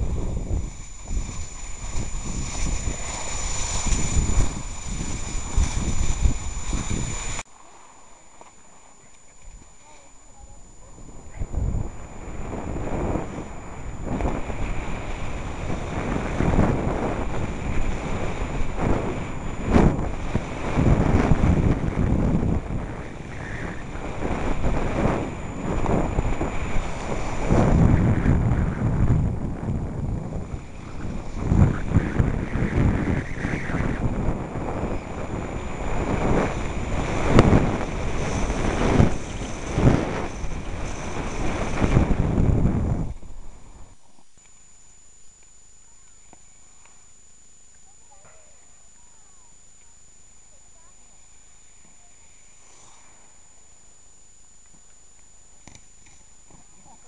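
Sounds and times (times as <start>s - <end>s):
skis sliding on snow: 0.0s - 7.4s, 12.2s - 28.9s, 34.6s - 43.2s
wind buffeting microphone: 0.0s - 7.4s, 10.6s - 44.0s.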